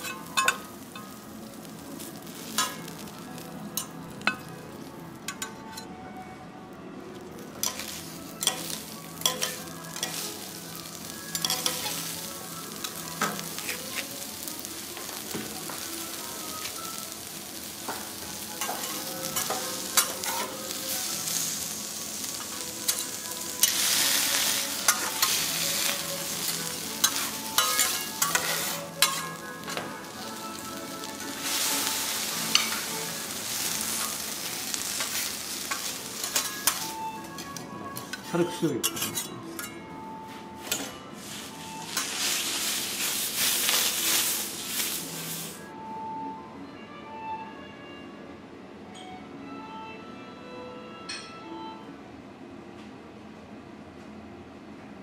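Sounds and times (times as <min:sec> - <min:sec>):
food sizzling on griddle: 0:00.0 - 0:05.4, 0:07.2 - 0:37.5, 0:40.6 - 0:45.7
metal spatulas clicking: 0:07.6 - 0:10.2, 0:27.0 - 0:29.8.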